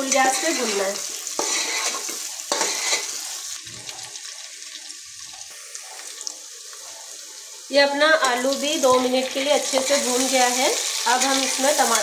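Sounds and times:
spatula scraping and stirring: 0:00.0 - 0:03.4
potatoes sizzling in oil: 0:00.0 - 0:12.0.

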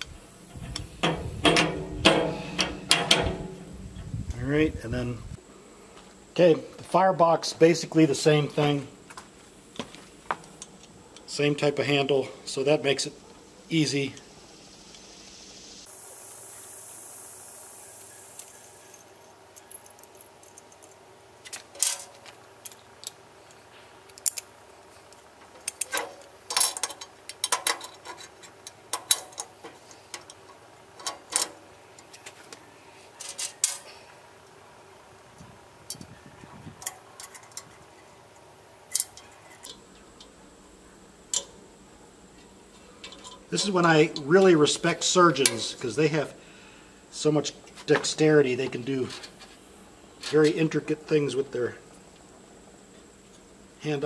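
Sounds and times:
metal hardware clinking on steel: 0:00.3 - 0:04.0, 0:18.4 - 0:23.2, 0:25.6 - 0:32.2, 0:36.8 - 0:40.4, 0:43.0 - 0:44.4, 0:45.0 - 0:45.8.

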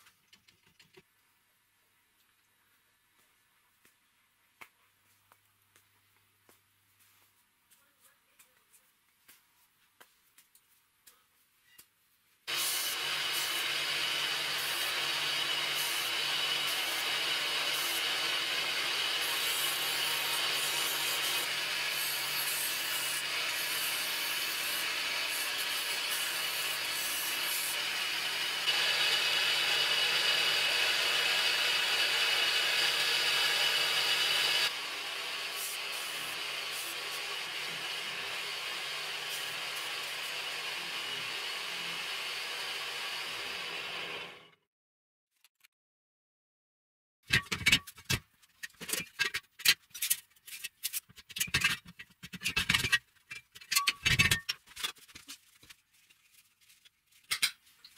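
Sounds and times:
belt sander sanding wood: 0:12.5 - 0:44.3.

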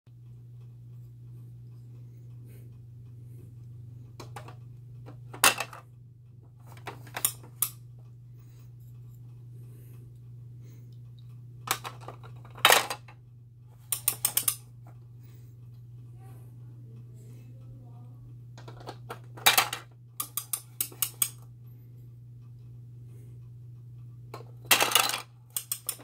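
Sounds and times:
plastic blocks clacking: 0:04.2 - 0:05.8, 0:11.7 - 0:13.2, 0:13.9 - 0:14.6, 0:18.6 - 0:21.4, 0:24.4 - 0:26.0.

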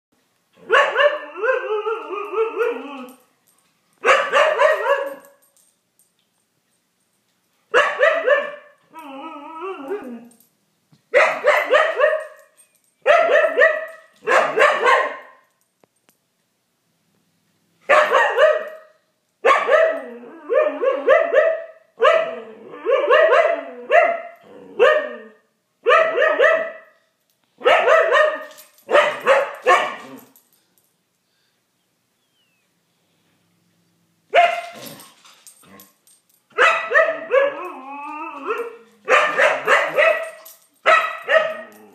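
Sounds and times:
dog drawn-out wavering barks: 0:04.0 - 0:05.2, 0:11.2 - 0:12.4, 0:13.1 - 0:15.4, 0:19.5 - 0:20.0, 0:27.6 - 0:30.2, 0:36.6 - 0:37.6, 0:39.1 - 0:40.3.

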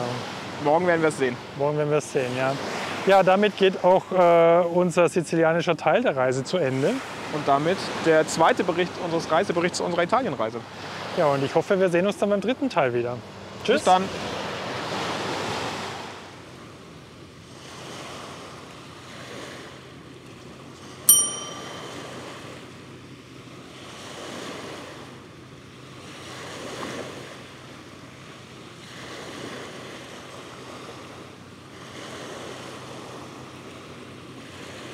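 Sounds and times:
small waves breaking on sand: 0:00.0 - 0:05.0, 0:05.9 - 0:34.9
bright bell ding: 0:21.1 - 0:22.3.

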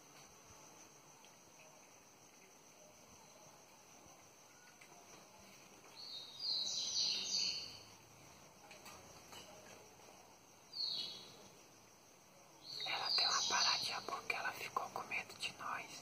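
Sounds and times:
faint steady hum: 0:00.0 - 0:16.0
bird chirping: 0:05.9 - 0:07.9, 0:10.7 - 0:11.4, 0:12.6 - 0:14.6.

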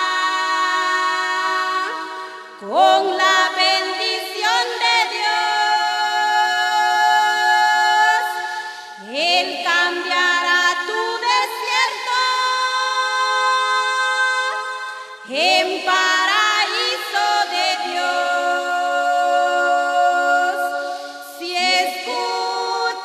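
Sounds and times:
women singing a hymn: 0:00.0 - 0:23.0.

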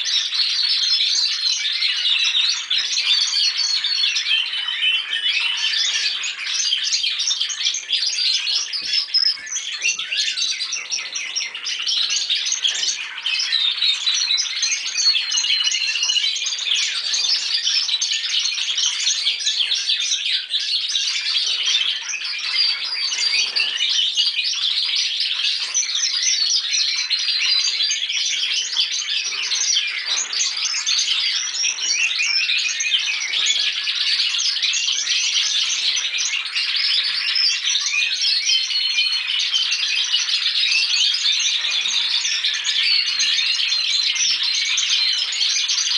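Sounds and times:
canaries singing trills: 0:00.0 - 0:45.9.

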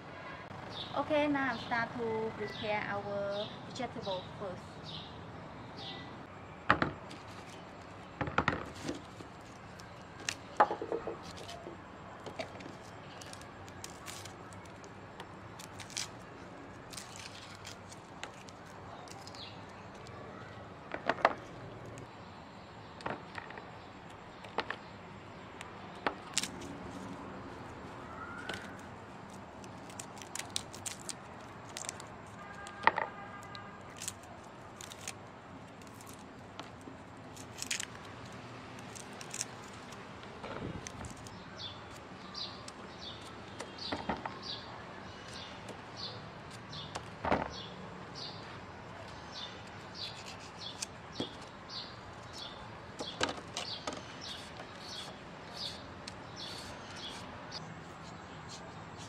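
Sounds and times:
bird chirping: 0:00.5 - 0:06.5, 0:41.1 - 0:59.0
hands peeling and tapping: 0:12.3 - 0:16.2, 0:16.8 - 0:20.1, 0:25.6 - 0:26.7, 0:28.4 - 0:41.4, 0:49.6 - 0:51.6.

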